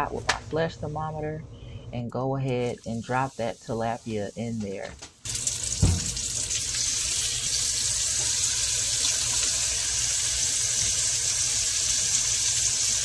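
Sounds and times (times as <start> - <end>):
fish sizzling in hot oil: 5.2 - 13.0
low thump: 5.8 - 6.2.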